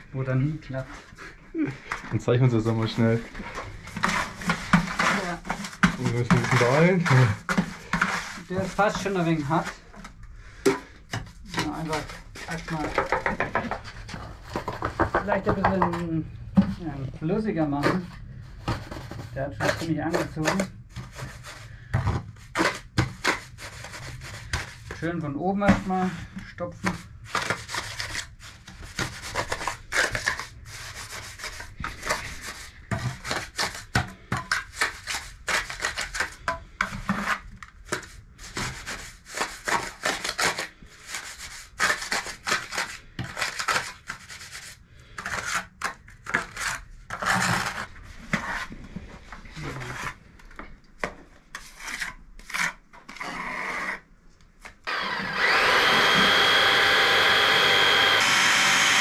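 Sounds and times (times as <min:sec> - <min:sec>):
trowel scraping mortar: 0:03.0 - 0:09.9, 0:17.8 - 0:25.1, 0:26.9 - 0:48.7, 0:51.5 - 0:54.0, 0:54.9 - 0:59.0
electric chainsaw running: 0:54.9 - 0:59.0.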